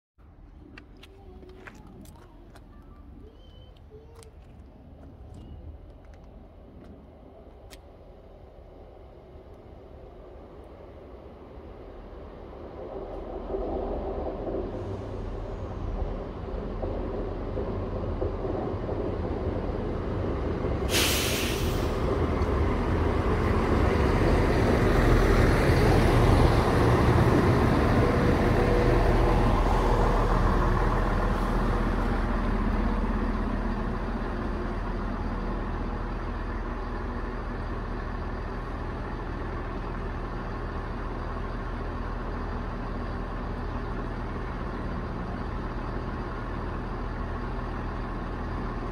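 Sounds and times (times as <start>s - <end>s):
diesel engines idling: 0.2s - 48.9s
train engines: 0.2s - 48.9s
sharp air hiss: 20.9s - 22.1s.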